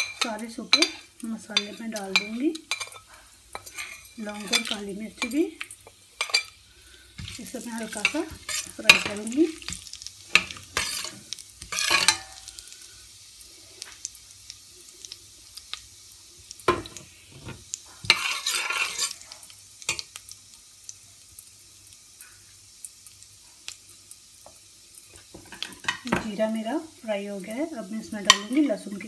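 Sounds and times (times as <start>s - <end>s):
spatula scraping a pot: 0.0s - 5.4s, 6.2s - 12.5s, 17.4s - 19.2s
spices sizzling in hot oil: 0.0s - 29.0s.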